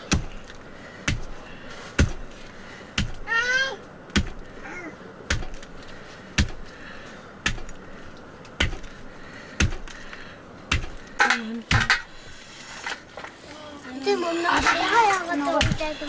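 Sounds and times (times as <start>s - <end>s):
blade chopping on wooden block: 2.0s - 2.2s, 5.3s - 5.6s, 6.4s - 6.7s, 7.4s - 7.8s, 8.6s - 8.9s, 10.7s - 12.0s.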